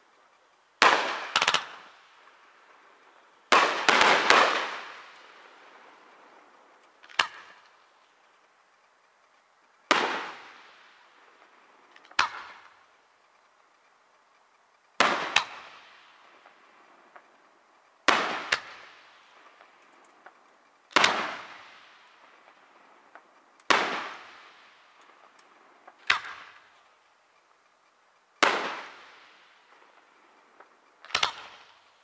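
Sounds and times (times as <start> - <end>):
firework bangs echoing: 0.8 - 2.3, 3.5 - 6.4, 9.9 - 12.8, 15.0 - 17.3, 18.0 - 25.3, 28.4 - 31.9.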